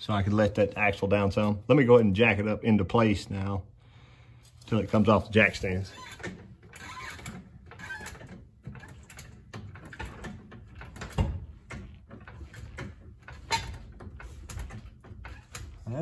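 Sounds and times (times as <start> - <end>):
car jack clunks and clicks: 6.0 - 15.9.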